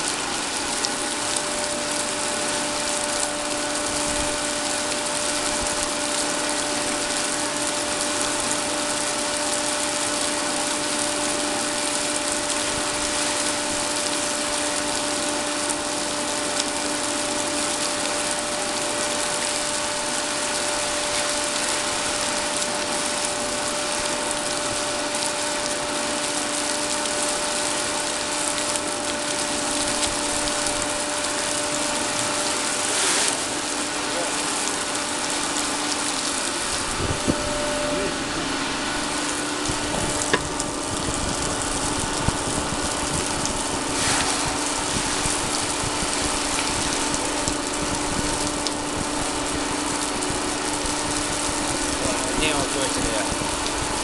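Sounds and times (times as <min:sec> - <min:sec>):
two-tone machinery hum: 0:00.0 - 0:54.0
machinery rushing noise: 0:30.4 - 0:48.3.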